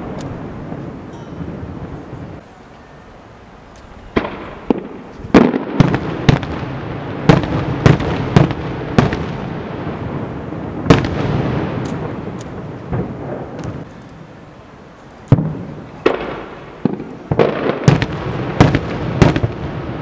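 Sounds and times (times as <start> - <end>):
fireworks bangs: 0.0 - 2.7, 4.0 - 14.5, 15.1 - 20.0.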